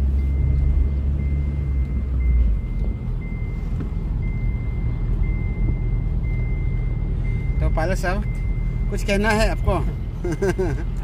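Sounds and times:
engine and road rumble: 0.0s - 11.0s
electronic warning beep: 0.1s - 10.8s.

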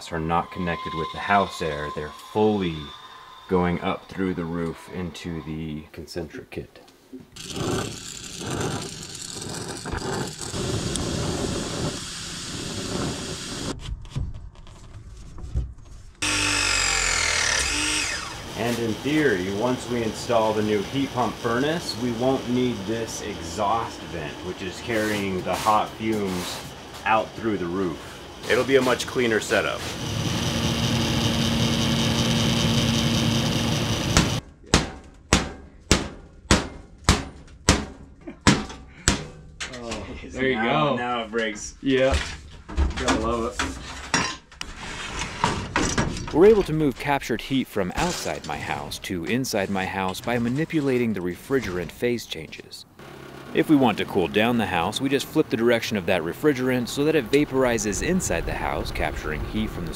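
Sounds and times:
pipe press tool motor whining: 7.4s - 13.7s, 16.2s - 34.4s
gas torch hissing: 7.4s - 13.8s, 18.3s - 34.4s
hammer striking metal venting: 33.5s - 39.8s.

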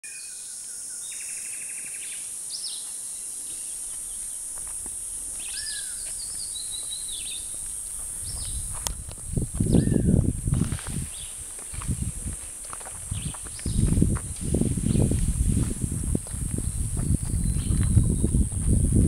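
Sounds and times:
high-pitched insect drone: 0.1s - 19.0s
birds calling: 2.1s - 8.7s, 9.6s - 10.2s, 11.0s - 11.8s, 12.5s - 14.0s.

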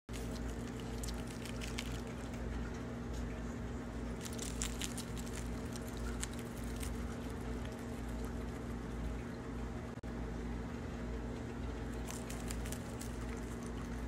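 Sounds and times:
guinea pig chewing leaves: 0.1s - 14.0s
low hum: 0.1s - 14.0s.

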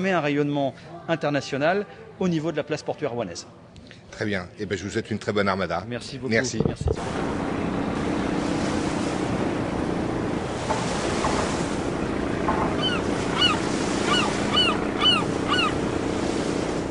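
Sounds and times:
wind: 0.0s - 16.9s
steady surf: 6.9s - 16.9s
gull calling: 12.7s - 15.9s.

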